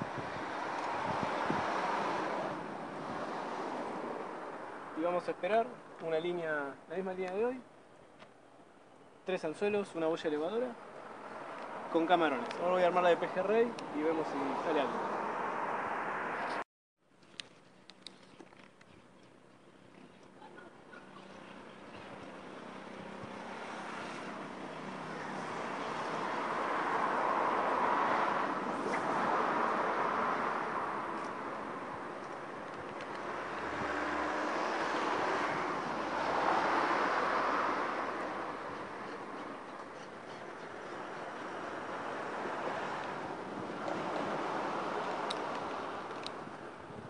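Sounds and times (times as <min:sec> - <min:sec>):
passing vehicle rushing: 0:00.0 - 0:05.1, 0:10.6 - 0:16.6, 0:22.4 - 0:47.0
outdoor rushing noise: 0:00.0 - 0:05.2.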